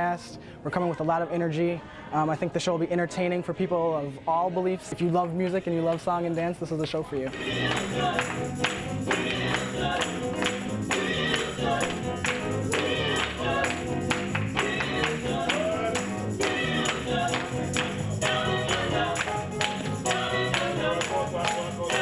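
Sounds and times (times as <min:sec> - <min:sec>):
choir singing gospel music: 0:00.0 - 0:22.0.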